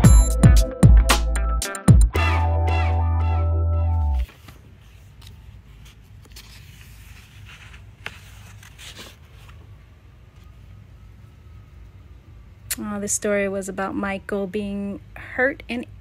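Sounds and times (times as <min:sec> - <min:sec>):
music: 0:00.0 - 0:04.3
light clicks of pages: 0:04.2 - 0:09.7
paper scraping and rustling: 0:04.2 - 0:09.8.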